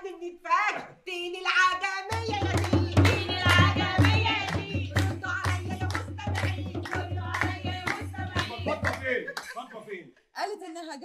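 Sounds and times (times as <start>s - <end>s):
women singing folk song: 1.1s - 9.2s
hand clapping: 2.1s - 9.6s
frame drum beating: 2.2s - 9.1s.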